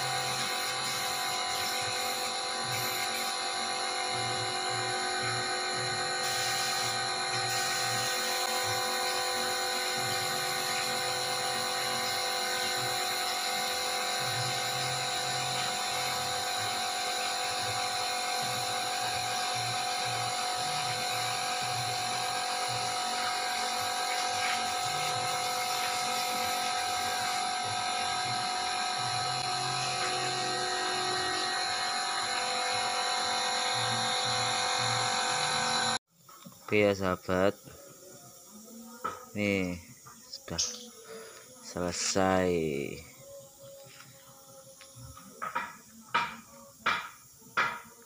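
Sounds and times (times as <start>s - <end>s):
air compressor whine: 0.0s - 48.0s.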